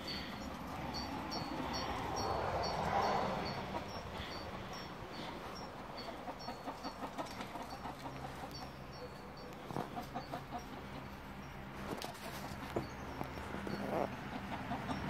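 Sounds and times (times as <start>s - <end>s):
chicken clucking: 0.9s - 11.3s, 13.7s - 15.0s.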